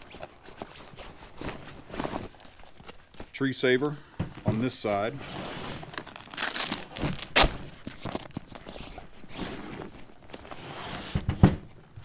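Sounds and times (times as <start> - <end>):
fabric bag rustling and scraping: 5.1 - 11.3.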